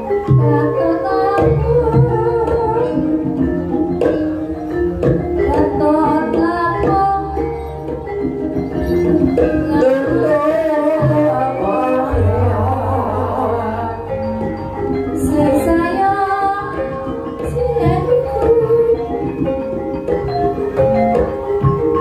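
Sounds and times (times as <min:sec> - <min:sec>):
gong-chime and metallophone tones: 0:00.0 - 0:22.0
hand-drum strokes: 0:00.0 - 0:22.0
person singing: 0:08.8 - 0:14.6.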